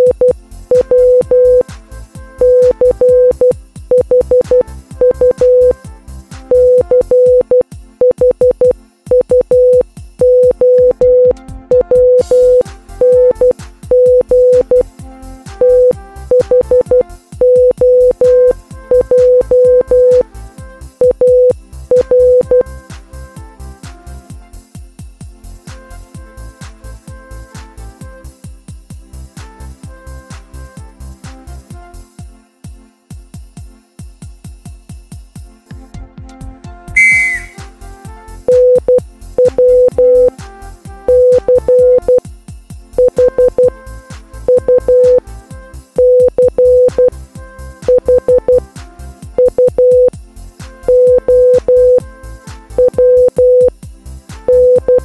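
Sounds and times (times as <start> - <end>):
morse code beeps: 0.0 - 1.7, 2.4 - 5.8, 6.5 - 14.9, 15.6 - 20.2, 21.0 - 22.7, 37.0 - 37.6, 38.5 - 40.3, 41.1 - 42.2, 43.0 - 43.8, 44.5 - 45.2, 46.0 - 47.1, 47.9 - 48.6, 49.4 - 50.1, 50.9 - 52.1, 52.8 - 53.7, 54.5 - 55.0
electronic music with steady beat: 0.8 - 1.8, 2.4 - 5.8, 6.4 - 7.6, 11.8 - 14.8, 15.6 - 17.0, 17.6 - 20.3, 37.0 - 37.6, 44.8 - 45.2, 51.1 - 52.1
synthesizer background music: 10.6 - 14.8
short bright whistle-like tone: 37.0 - 37.6.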